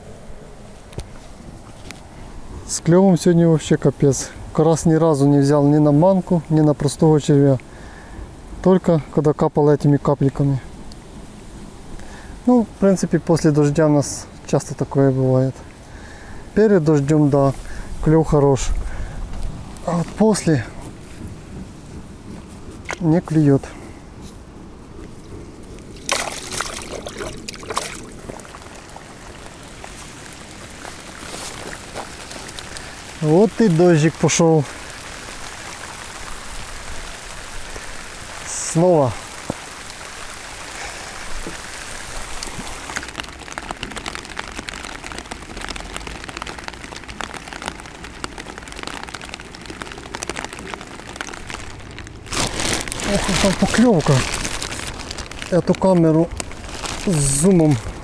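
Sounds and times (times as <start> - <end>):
light rain pattering on water: 0.0 - 58.0
water splashing and trickling: 11.7 - 23.8, 25.2 - 58.0
sudden loud rustling: 41.2 - 58.0.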